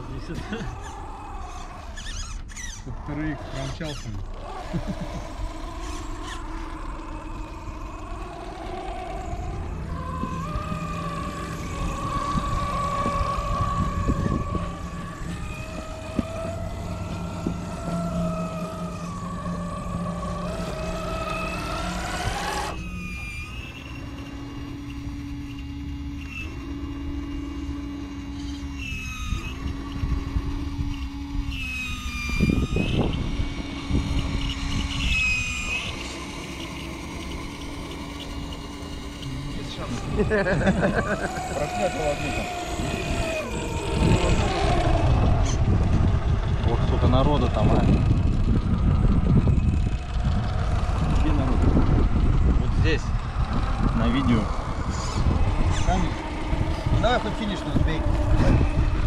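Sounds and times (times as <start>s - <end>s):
rc truck motor and gears whining: 0.0s - 59.0s.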